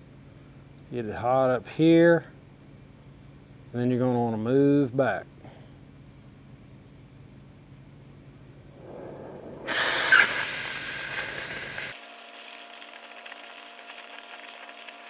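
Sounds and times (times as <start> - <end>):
faint flame hiss: 8.6 - 15.0
loud oxygen jet hiss: 8.8 - 15.0.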